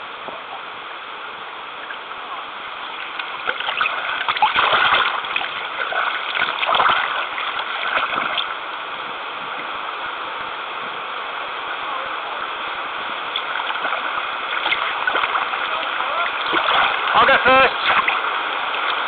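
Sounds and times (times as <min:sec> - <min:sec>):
moving water hiss: 0:00.0 - 0:19.0
canoe paddle splashing in water: 0:02.9 - 0:08.6, 0:13.3 - 0:19.0.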